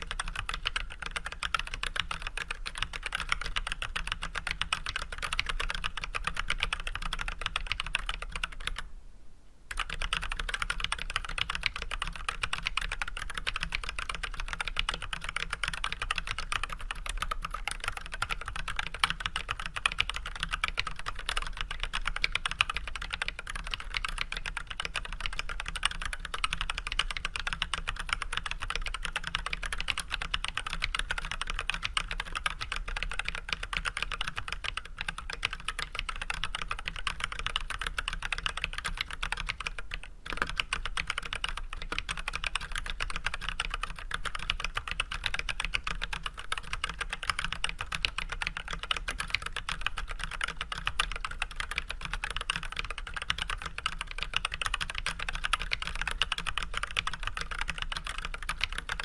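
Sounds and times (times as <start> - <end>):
fast mechanical keyboard typing: 0.0 - 8.8, 9.7 - 59.0.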